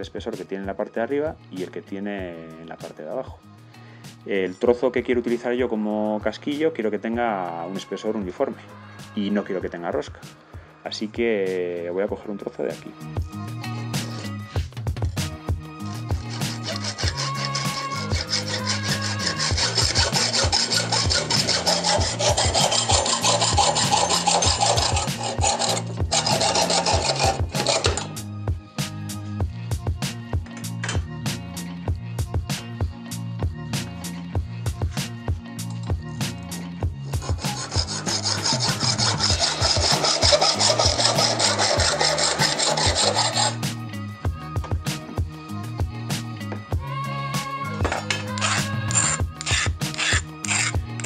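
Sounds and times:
background music with steady beat: 0.0 - 51.0
hacksaw cutting metal: 16.2 - 28.2, 37.1 - 43.6, 47.9 - 51.0.

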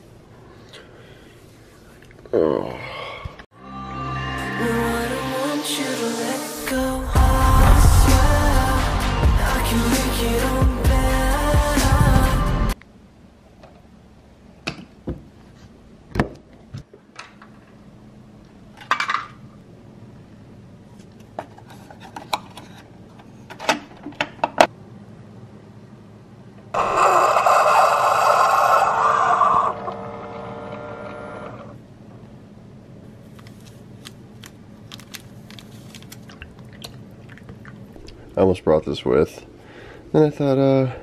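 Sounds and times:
coffee maker pump whirring: 26.8 - 31.7.

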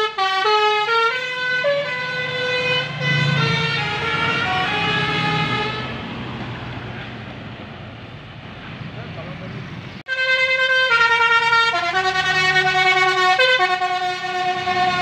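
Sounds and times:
musical air horn melody: 0.0 - 6.0, 10.1 - 15.0
bus engine rumble: 0.0 - 15.0.

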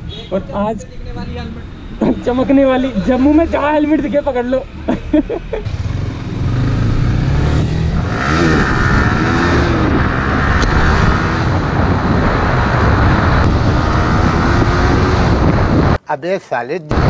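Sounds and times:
motorcycle engine accelerating: 5.7 - 16.0.

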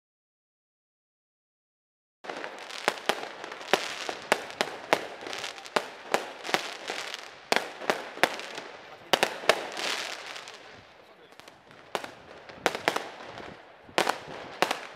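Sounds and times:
fireworks bangs: 2.2 - 14.9
crackle of bursting shells: 2.3 - 10.8.

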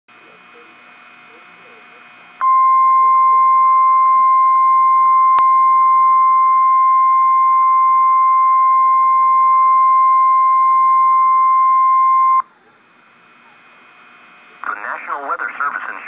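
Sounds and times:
steady warning tone: 2.4 - 12.5.

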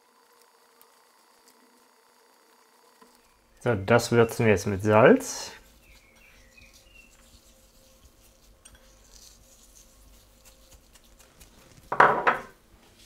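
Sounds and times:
salt sprinkling ticks: 10.2 - 11.8.

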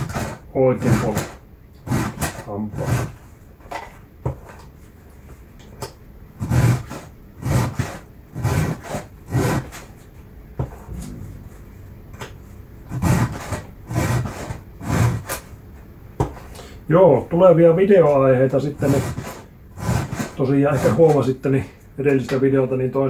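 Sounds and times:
file rasping on chainsaw chain: 0.0 - 3.2, 18.8 - 21.2.

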